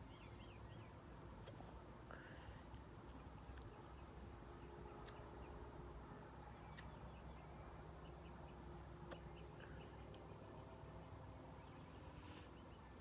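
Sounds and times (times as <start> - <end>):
soft clicks: 3.5 - 3.8, 9.0 - 10.3.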